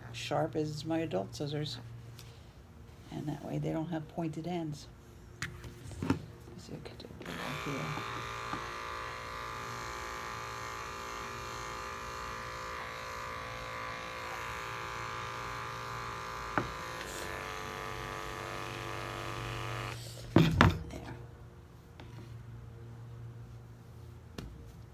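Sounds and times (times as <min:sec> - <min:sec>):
electric pet clippers buzzing: 0:07.2 - 0:20.1.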